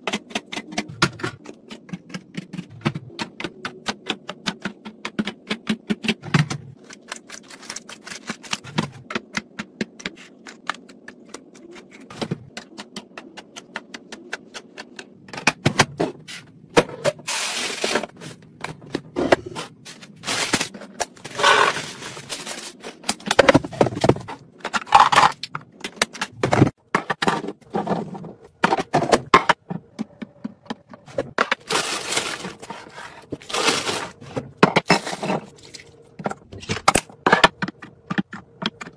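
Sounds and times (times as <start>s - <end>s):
plastic tapping and clacking: 0.0s - 6.8s, 36.2s - 38.9s
plastic containers scraping and rattling: 0.0s - 38.9s.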